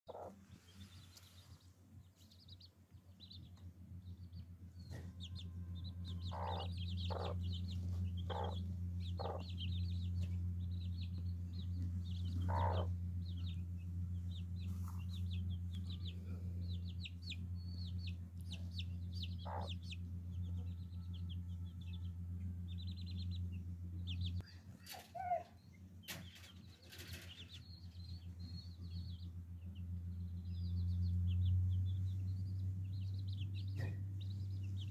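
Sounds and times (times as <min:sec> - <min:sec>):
hen clucking: 0:00.1 - 0:01.3, 0:04.9 - 0:20.7
chicks peeping: 0:00.1 - 0:34.9
low steady hum: 0:00.1 - 0:34.9.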